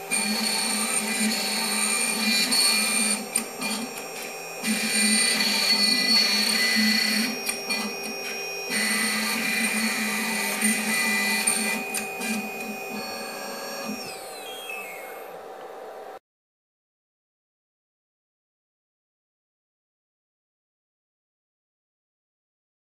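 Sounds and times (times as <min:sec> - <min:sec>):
end mill cutting wood: 0:00.0 - 0:15.4
stepper motors moving: 0:00.0 - 0:15.6
spindle whining: 0:00.0 - 0:16.1.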